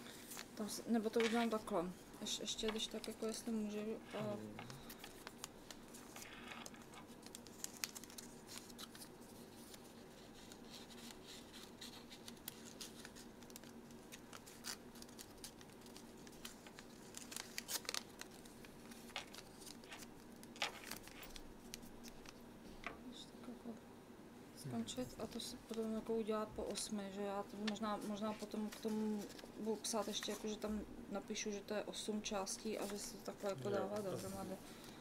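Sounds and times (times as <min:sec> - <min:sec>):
paper being folded and creased: 0:04.8 - 0:22.4, 0:27.5 - 0:30.6.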